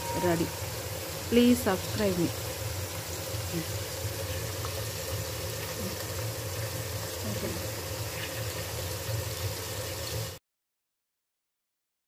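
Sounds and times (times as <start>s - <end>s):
cooktop humming and hissing: 0.0s - 10.4s.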